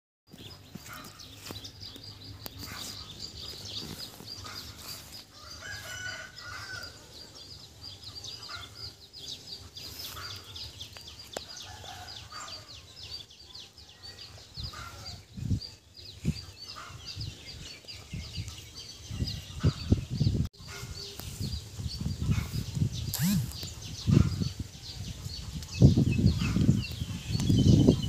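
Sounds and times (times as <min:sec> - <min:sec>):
birds chirping: 0:00.3 - 0:28.0
chickens clucking: 0:00.3 - 0:28.0
rooster crowing: 0:05.4 - 0:07.1.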